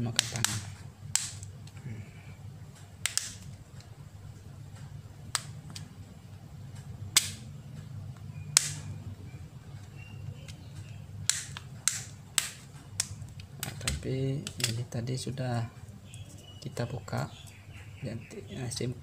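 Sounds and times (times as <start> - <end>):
low steady hum: 0.0 - 19.0
plastic clips snapping: 0.1 - 1.8, 3.0 - 3.5, 5.3 - 5.9, 7.1 - 7.5, 8.6 - 8.9, 10.5 - 14.8.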